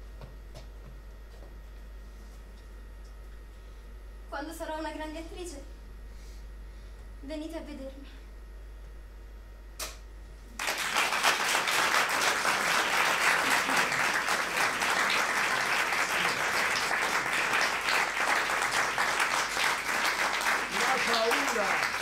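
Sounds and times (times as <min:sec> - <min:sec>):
audience applauding: 0:10.6 - 0:22.0.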